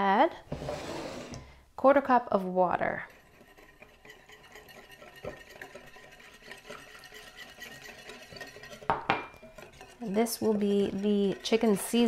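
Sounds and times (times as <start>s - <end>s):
whisk stirring against glass: 2.8s - 12.0s.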